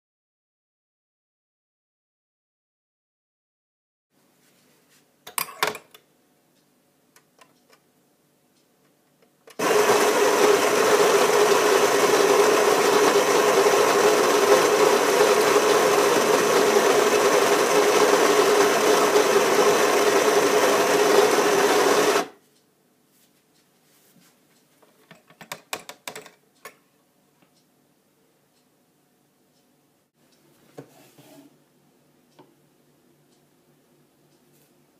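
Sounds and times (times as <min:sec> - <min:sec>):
coffee grinder grinding: 0:09.5 - 0:22.4.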